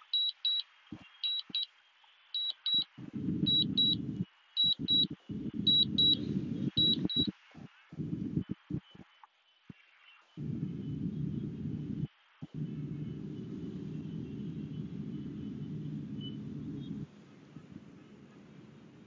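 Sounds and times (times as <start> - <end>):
low rumbling noise: 3.0 - 7.3, 8.0 - 8.8, 10.4 - 19.0.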